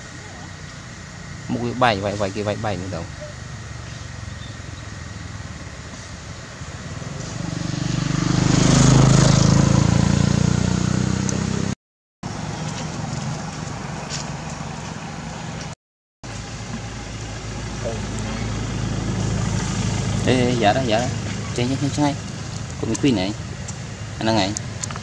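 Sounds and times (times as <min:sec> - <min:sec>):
vehicle engine passing by: 0:03.6 - 0:15.5, 0:17.6 - 0:23.6.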